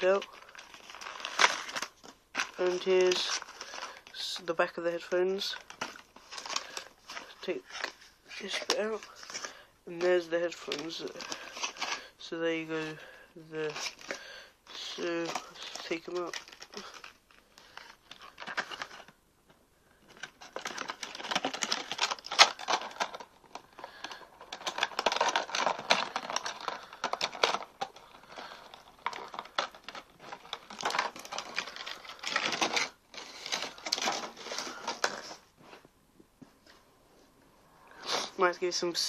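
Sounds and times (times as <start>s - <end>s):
plastic packaging crinkling: 0.0s - 19.2s, 19.9s - 35.5s.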